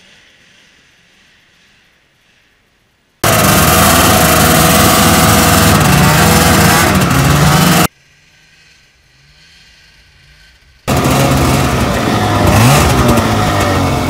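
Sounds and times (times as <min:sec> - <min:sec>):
distant snowmobile approaching: 0:03.2 - 0:14.0
snowmobile engine running: 0:03.2 - 0:14.0.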